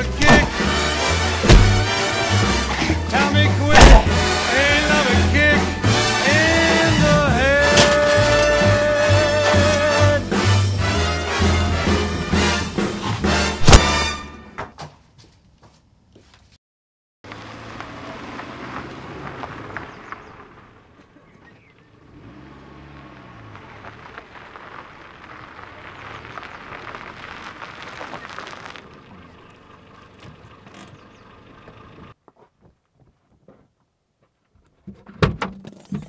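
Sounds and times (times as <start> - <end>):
tyres spraying gravel: 0.0 - 14.1, 22.2 - 29.3
car engine revving: 17.3 - 20.8, 21.9 - 24.6.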